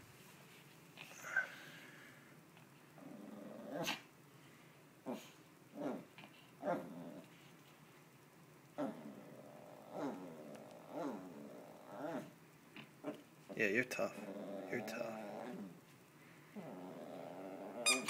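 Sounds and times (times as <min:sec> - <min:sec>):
small dog play-growling: 0:03.0 - 0:04.1, 0:05.0 - 0:07.5, 0:08.8 - 0:12.4, 0:13.9 - 0:15.9, 0:16.5 - 0:18.0.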